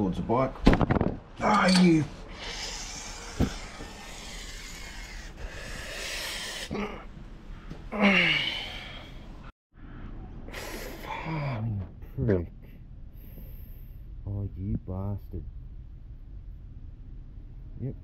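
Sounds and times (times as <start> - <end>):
man hissing breath: 2.3 - 6.8
man groaning in pain: 7.9 - 9.1.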